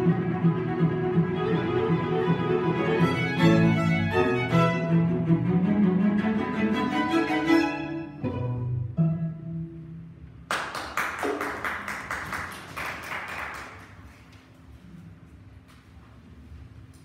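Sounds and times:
string quartet playing: 0.0 - 9.9
audience clapping: 10.5 - 14.5.

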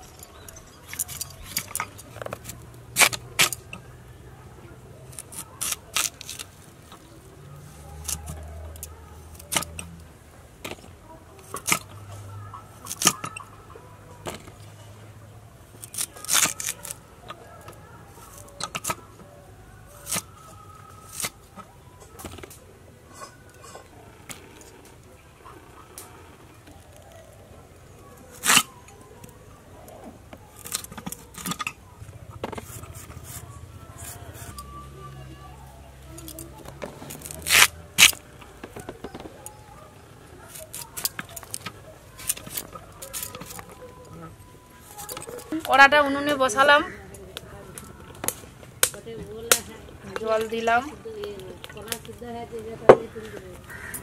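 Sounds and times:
blade crunching through vegetable: 5.1 - 10.0, 15.8 - 17.0, 20.0 - 21.5, 28.2 - 28.8, 36.1 - 39.6, 40.3 - 43.9
blade scraping vegetable: 32.5 - 34.8, 36.2 - 38.2.

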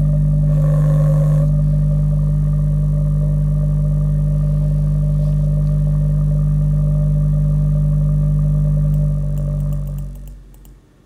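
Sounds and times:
buzzy low test tone: 0.0 - 10.7
faint clicks: 8.9 - 10.8.

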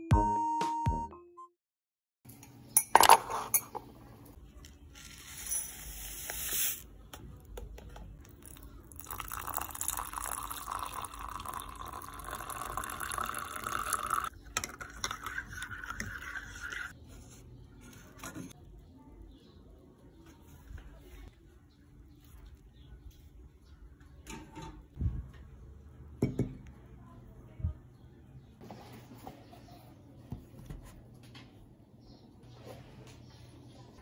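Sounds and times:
liquid pouring into mug: 8.3 - 16.9.

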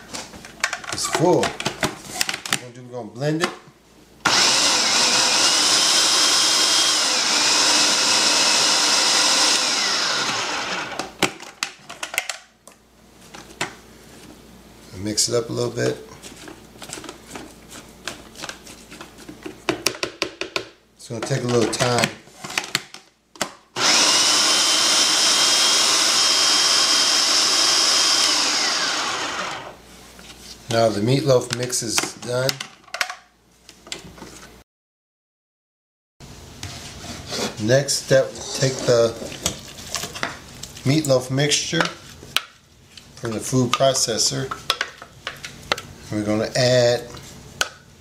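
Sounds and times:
food processor motor running: 4.3 - 11.1, 23.8 - 29.8.

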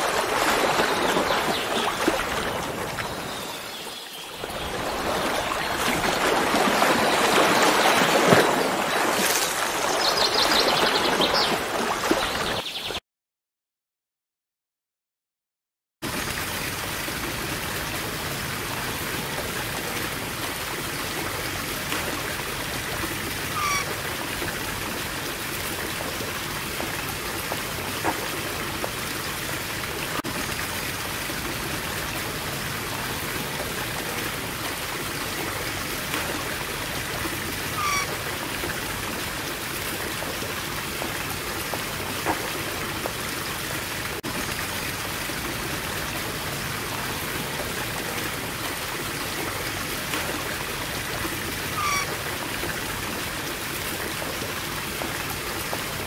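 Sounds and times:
running water hissing: 35.2 - 39.4.

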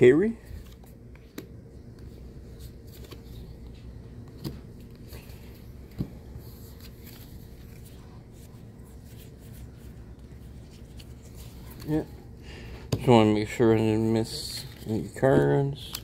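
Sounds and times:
cards sliding and rustling: 0.4 - 12.1.

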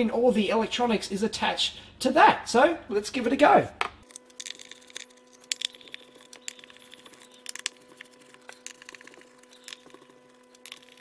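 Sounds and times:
metal screws dropped on workbench: 4.0 - 7.8.

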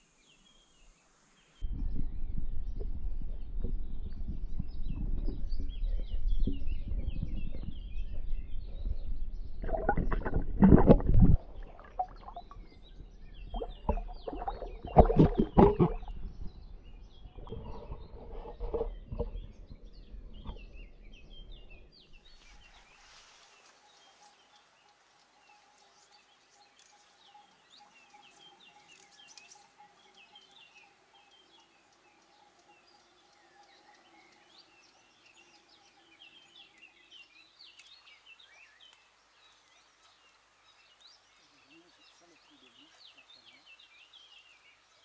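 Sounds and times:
faint outdoor background noise: 0.0 - 45.0
small birds chirping: 0.0 - 45.0
low rumble: 1.6 - 22.0.

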